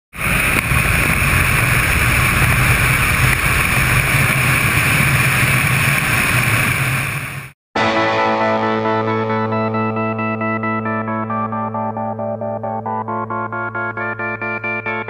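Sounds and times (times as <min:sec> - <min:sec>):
road noise: 0:00.1 - 0:07.5
wind noise: 0:00.2 - 0:07.5
low engine drone: 0:00.2 - 0:15.0.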